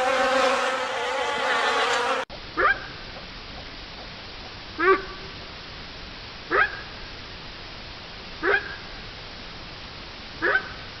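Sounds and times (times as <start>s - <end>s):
steady background hiss: 2.3s - 11.0s.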